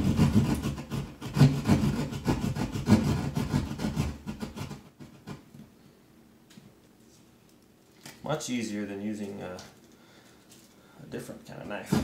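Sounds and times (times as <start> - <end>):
jab saw cutting drywall: 0.0 - 5.4, 11.7 - 12.0.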